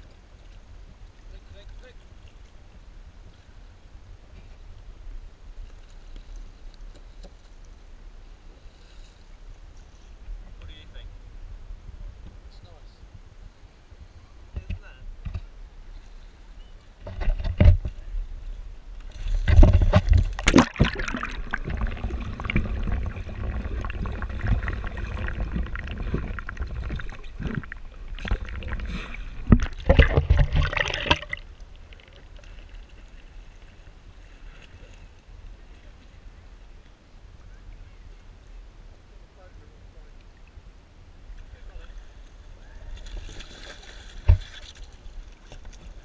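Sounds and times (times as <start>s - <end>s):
faint water lapping: 0.0s - 46.0s
loud splash: 19.4s - 31.5s
underwater rushing bubbling water: 19.4s - 32.5s.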